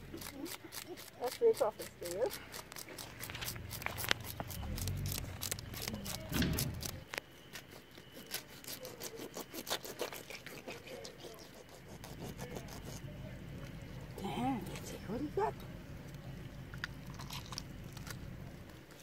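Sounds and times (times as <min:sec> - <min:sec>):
knife scraping fish scales: 0:00.0 - 0:13.1.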